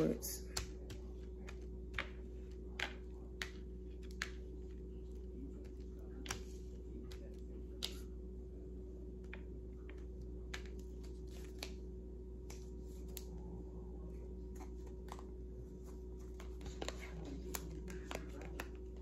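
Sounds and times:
low hum: 0.0s - 19.0s
cards shuffling: 9.3s - 13.4s, 14.5s - 19.0s.

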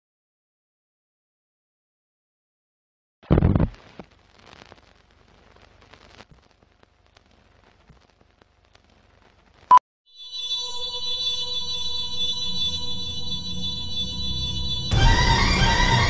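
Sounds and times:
music: 10.1s - 16.0s.

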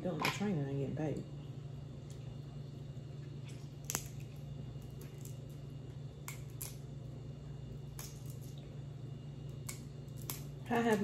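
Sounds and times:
steady low hum: 0.0s - 11.0s
crab shell cracking: 3.4s - 7.1s, 7.7s - 8.6s, 9.4s - 11.0s.

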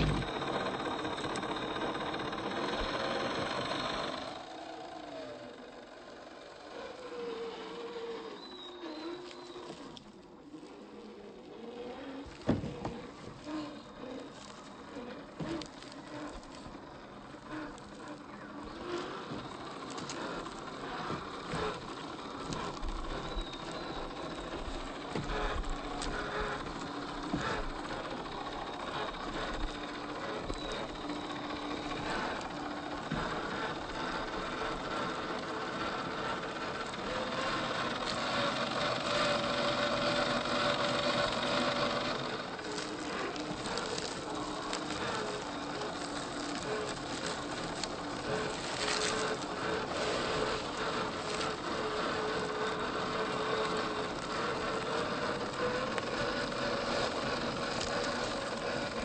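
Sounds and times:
electric motor whining: 0.0s - 59.0s
tyres crackling on dry leaves: 0.0s - 59.0s.

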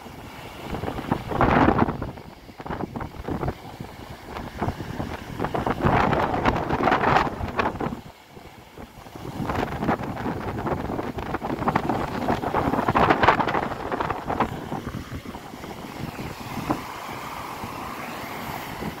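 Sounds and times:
surf breaking and churning: 0.0s - 19.0s
wind buffeting microphone: 0.0s - 19.0s.

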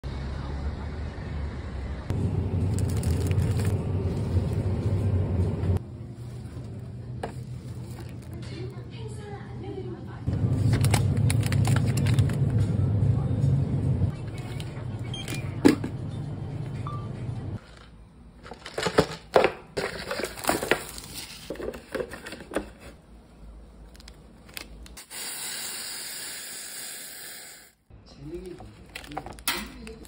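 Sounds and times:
plastic and paper crinkling: 2.6s - 4.9s, 6.2s - 8.4s, 10.6s - 12.4s, 17.6s - 23.0s, 28.3s - 30.0s.

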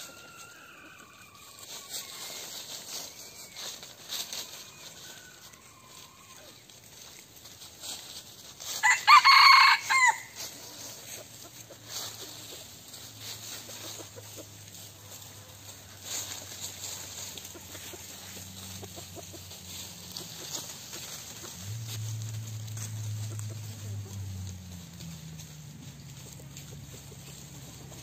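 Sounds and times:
rooster crowing: 0.0s - 2.6s, 4.4s - 6.6s, 8.8s - 10.4s.

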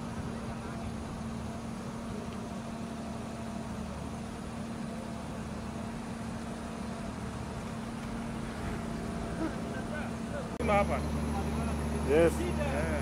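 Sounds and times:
engine running steadily: 0.0s - 13.0s.

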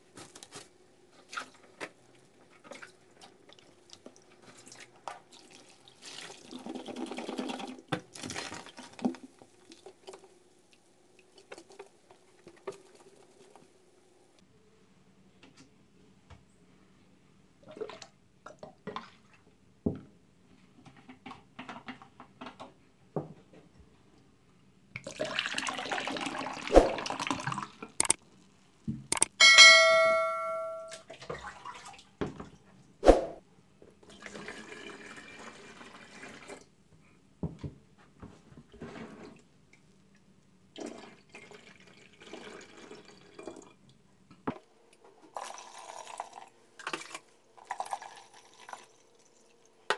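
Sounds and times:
ringing clink: 29.4s - 31.0s
foamy liquid pouring into tank: 34.1s - 36.6s, 45.4s - 49.0s.

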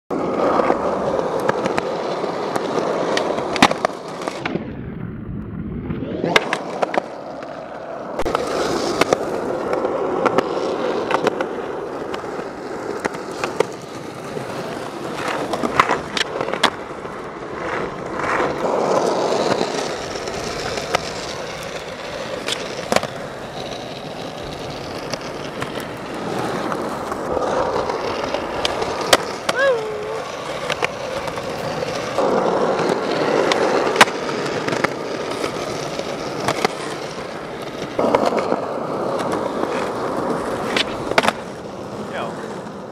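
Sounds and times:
skateboard wooden clacks: 0.1s - 4.6s, 6.2s - 42.9s
skateboard wheels rolling on concrete: 0.1s - 42.9s.

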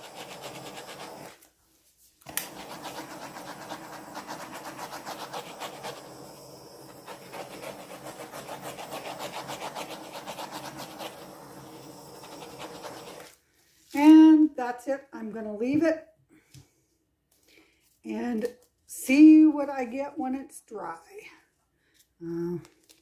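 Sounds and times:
torch flame hissing: 0.0s - 1.4s, 2.3s - 13.3s
torch click: 2.2s - 2.6s.

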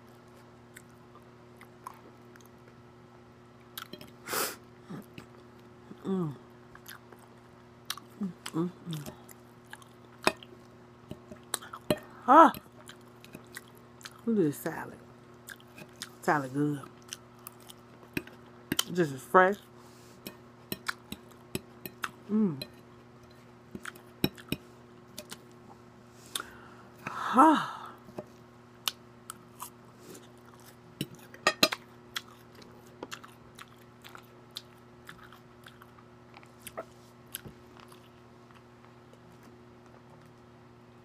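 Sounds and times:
chewing crunchy lettuce: 6.7s - 10.7s, 12.6s - 14.3s, 15.3s - 20.1s, 28.8s - 40.4s
fork tapping a glass plate: 31.4s - 31.8s.

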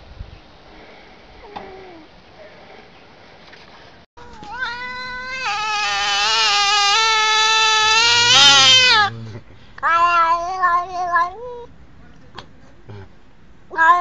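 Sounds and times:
cat meowing: 4.2s - 9.1s, 9.8s - 11.7s, 13.7s - 14.0s.

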